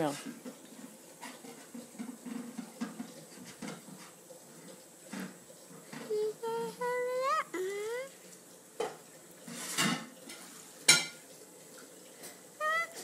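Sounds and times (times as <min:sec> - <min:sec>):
girl whimpering: 0:06.1 - 0:08.1, 0:12.6 - 0:13.0.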